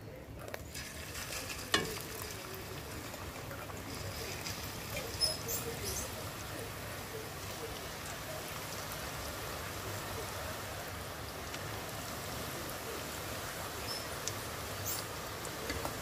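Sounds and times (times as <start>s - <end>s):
oil sizzling and bubbling: 0.0s - 16.0s.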